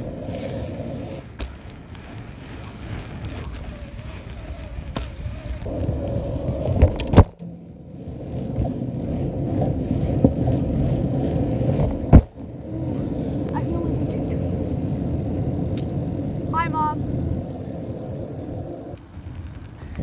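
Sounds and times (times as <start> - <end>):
scooter wheels rolling on asphalt: 0.0 - 20.0.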